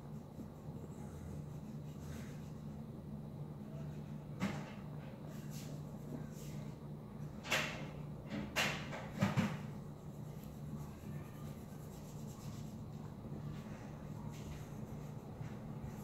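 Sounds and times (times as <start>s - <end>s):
low steady hum: 0.0s - 16.0s
marker scratching on paper: 9.9s - 13.0s, 14.3s - 16.0s.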